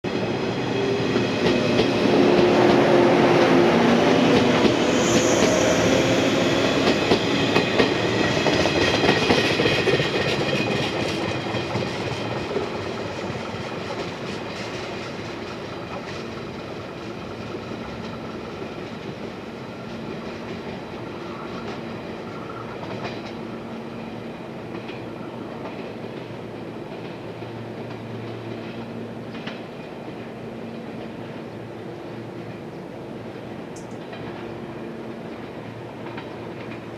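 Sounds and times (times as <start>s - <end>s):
train wheels clicking over rail joints: 0.9s - 30.2s.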